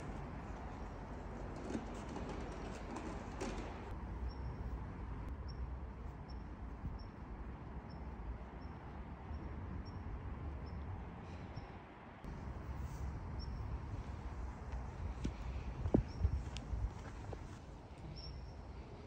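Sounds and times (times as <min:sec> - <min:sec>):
steady low rumble: 0:12.3 - 0:19.0
soft footsteps in snow: 0:14.5 - 0:17.6.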